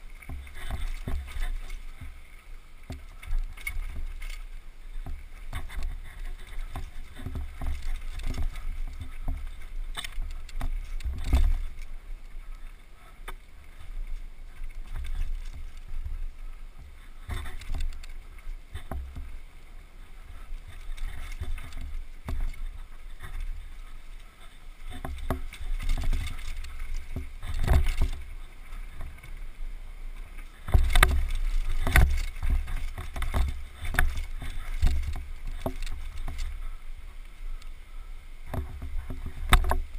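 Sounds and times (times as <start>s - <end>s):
bike clanking and rattling: 0.0s - 2.1s, 5.0s - 12.0s, 17.2s - 19.3s, 20.2s - 29.3s, 30.4s - 36.8s.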